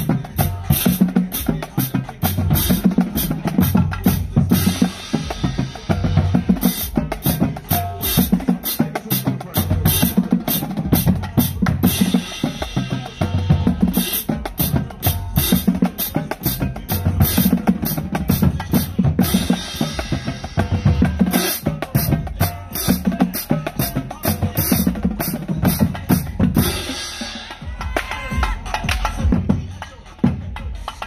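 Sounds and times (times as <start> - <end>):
bass drums: 0.0 - 31.0
snare drums: 0.0 - 31.0.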